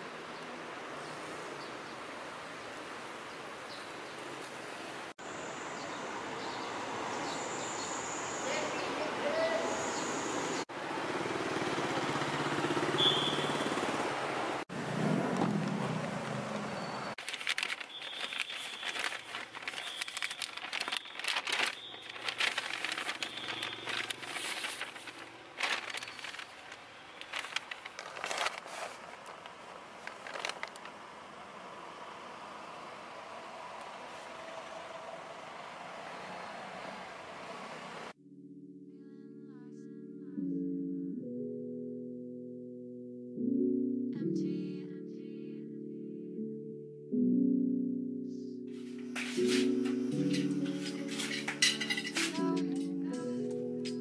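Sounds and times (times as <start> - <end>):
faint traffic: 0.0 - 38.2
street noise: 0.0 - 38.2, 48.9 - 52.9
book pulled from paper bag: 17.2 - 30.9, 48.8 - 51.8
paper bag crinkling and rustling: 17.2 - 31.0, 48.8 - 52.6.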